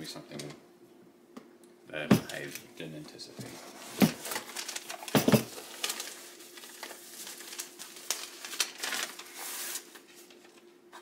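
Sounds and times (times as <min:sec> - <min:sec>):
paper and plastic rustling: 0:03.4 - 0:11.0.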